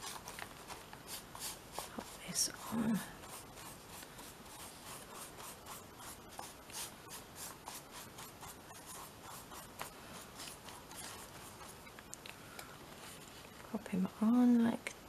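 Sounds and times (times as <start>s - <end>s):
paintbrush strokes on paper: 0.0s - 12.0s, 12.9s - 13.9s.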